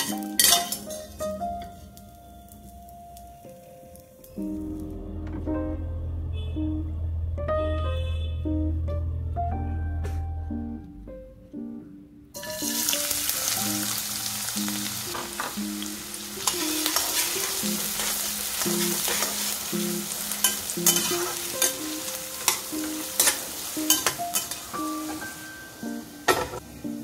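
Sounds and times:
onion sizzling in hot oil: 0.0s - 4.8s, 12.4s - 26.6s
light plucked background music: 0.0s - 27.0s
metal spatula scraping pan: 12.4s - 13.0s, 16.4s - 19.6s, 20.4s - 25.2s.

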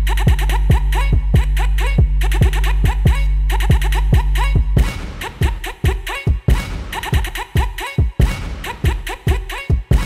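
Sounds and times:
deep bass note: 0.0s - 5.0s
kick drum beat: 0.2s - 10.0s.

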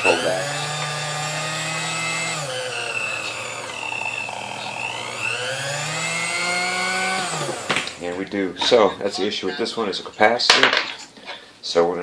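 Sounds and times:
mixer motor whining: 0.0s - 8.9s.

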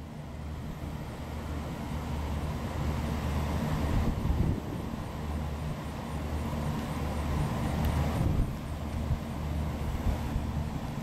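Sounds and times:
low outdoor rumble: 0.0s - 11.0s.

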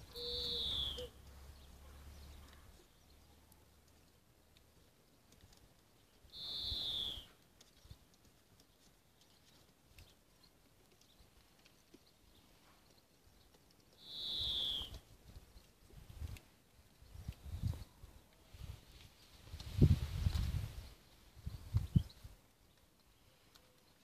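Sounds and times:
high thin animal call: 0.1s - 1.2s, 14.0s - 15.0s.

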